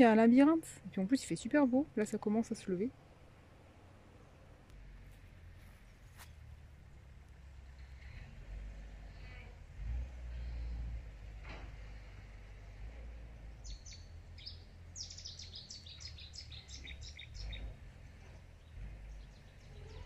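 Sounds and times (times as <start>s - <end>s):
low steady rumble: 0.0s - 20.0s
small bird chirping: 13.6s - 20.0s.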